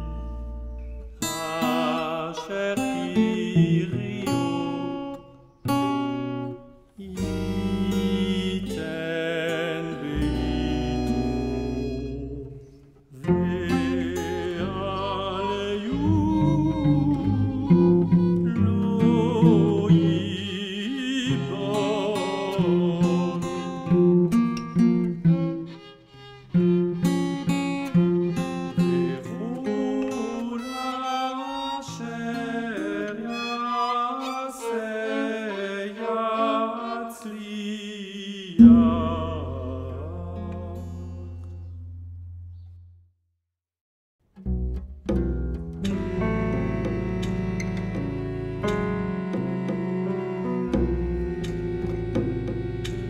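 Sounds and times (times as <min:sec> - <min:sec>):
contemporary music: 0:00.0 - 0:05.6, 0:06.8 - 0:24.3, 0:27.4 - 0:41.8, 0:45.8 - 0:53.0
chanting voice: 0:01.2 - 0:04.7, 0:07.0 - 0:23.9, 0:29.0 - 0:40.8
held wavering melody line: 0:10.6 - 0:12.6
plucked notes: 0:15.9 - 0:20.4, 0:44.4 - 0:53.0.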